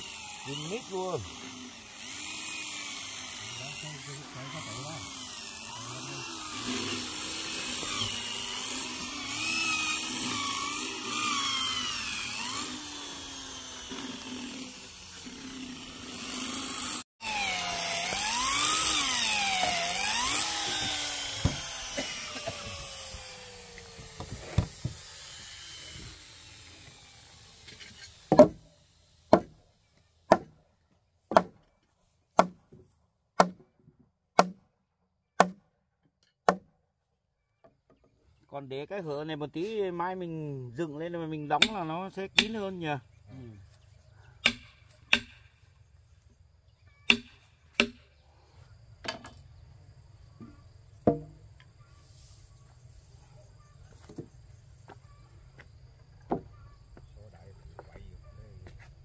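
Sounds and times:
electric drill boring into wood: 0:00.0 - 0:29.4
sharp knocks: 0:28.3 - 0:28.6.

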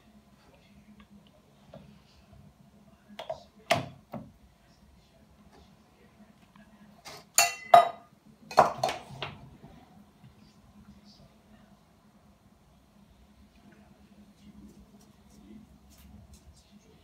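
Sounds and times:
glass bottle clinking: 0:07.4 - 0:08.0.

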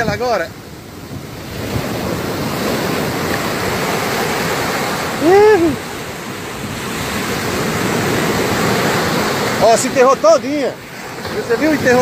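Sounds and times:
surf breaking on sand: 0:00.0 - 0:12.0
person shouting: 0:05.2 - 0:05.8.

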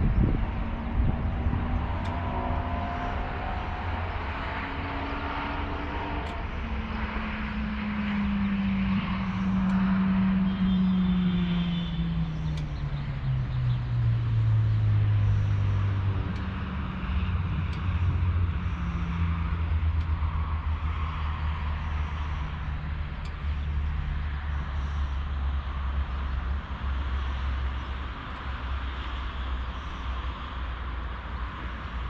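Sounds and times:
wind rushing over microphone: 0:00.0 - 0:11.2.

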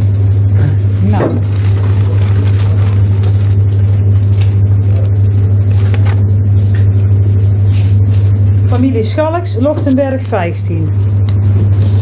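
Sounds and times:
loud steady low hum: 0:00.0 - 0:12.0
paper tickets rustling in a jar: 0:01.4 - 0:03.8.

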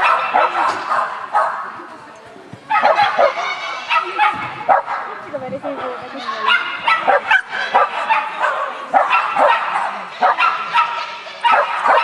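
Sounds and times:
dog barking: 0:00.0 - 0:01.7, 0:02.7 - 0:05.1, 0:06.4 - 0:12.0.

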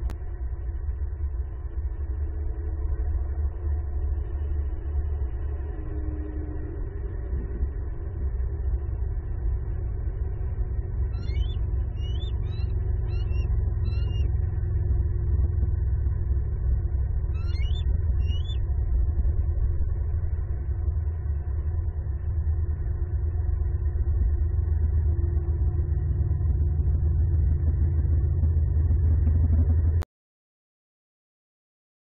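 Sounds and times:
steady low rumble: 0:00.0 - 0:30.1
bird chirping: 0:11.1 - 0:14.3, 0:17.3 - 0:18.6.

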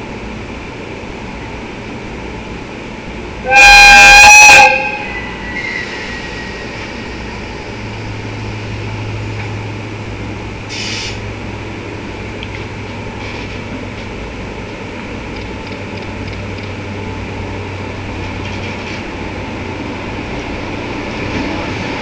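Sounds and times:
train horn blast: 0:03.4 - 0:06.6
locomotive low hum: 0:04.7 - 0:22.0
brief hiss: 0:10.7 - 0:11.2.

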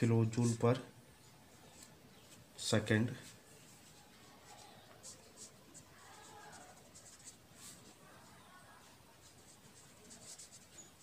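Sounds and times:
pen scratching on paper: 0:03.8 - 0:11.0.

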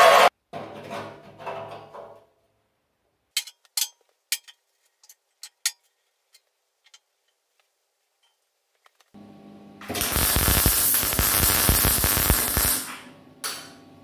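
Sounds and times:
metal fittings clinking on steel: 0:03.4 - 0:07.1.

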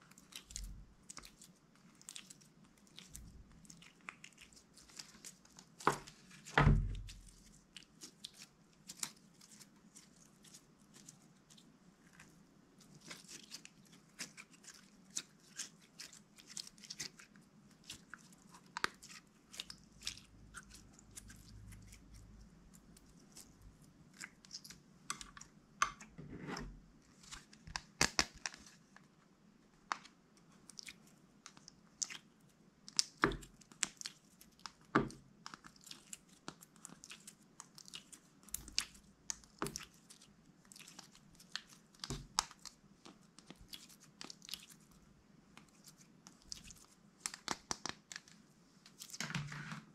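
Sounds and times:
slime crackling and popping: 0:27.7 - 0:28.6, 0:30.7 - 0:44.8, 0:45.6 - 0:48.3.

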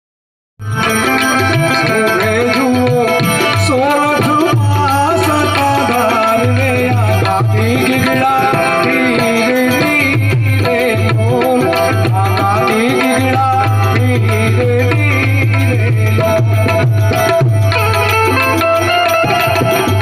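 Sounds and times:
electronic keyboard melody: 0:00.6 - 0:20.0
tabla: 0:00.6 - 0:20.0.

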